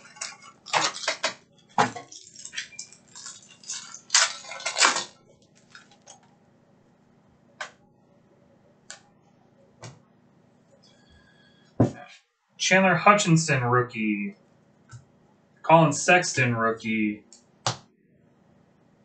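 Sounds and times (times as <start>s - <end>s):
foil wrapper crinkling and tearing: 0.0s - 6.3s.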